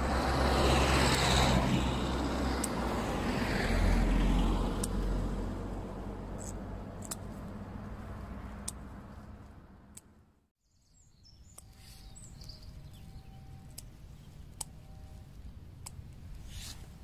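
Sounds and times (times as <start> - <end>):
vehicle low rumble: 0.0 - 17.0
faint bird chirps: 10.6 - 15.3.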